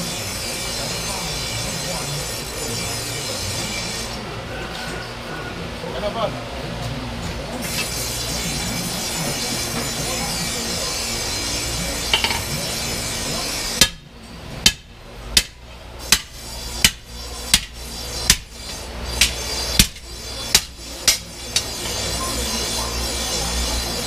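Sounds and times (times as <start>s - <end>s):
hammer striking chisel on steel: 12.0s - 12.7s, 13.7s - 14.0s, 14.6s - 23.1s.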